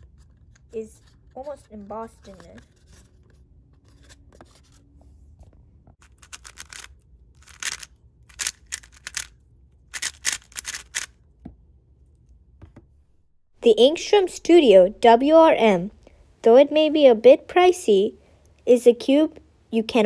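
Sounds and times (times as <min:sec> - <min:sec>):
plastic cube layers clicking: 0:06.0 - 0:09.3, 0:09.9 - 0:11.1.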